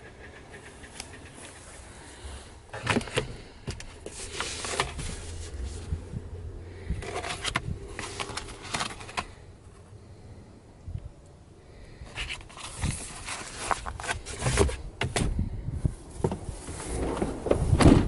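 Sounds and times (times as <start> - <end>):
glove box clicks and knocks: 2.7 - 5.2, 13.7 - 15.3.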